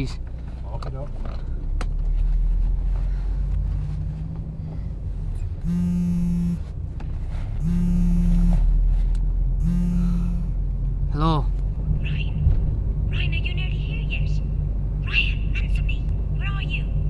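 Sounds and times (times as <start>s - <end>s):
car engine and road hum: 0.0s - 17.0s
phone ringing pulses: 5.6s - 6.6s, 7.6s - 8.7s, 9.6s - 10.5s.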